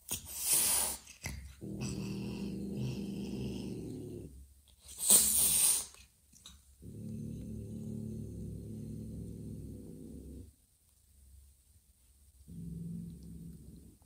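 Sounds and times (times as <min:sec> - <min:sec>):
cat hissing: 0:00.0 - 0:06.1
cat growling: 0:00.2 - 0:10.6, 0:12.5 - 0:14.0.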